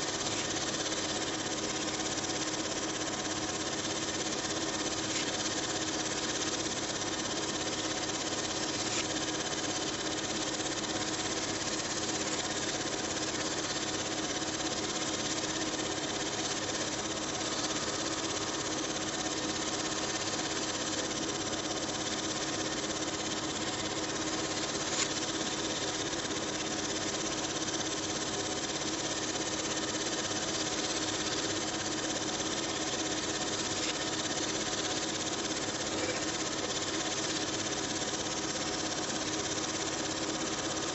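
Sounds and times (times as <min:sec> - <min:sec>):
film projector whirring: 0:00.0 - 0:40.9
sharp projector click: 0:24.8 - 0:25.8.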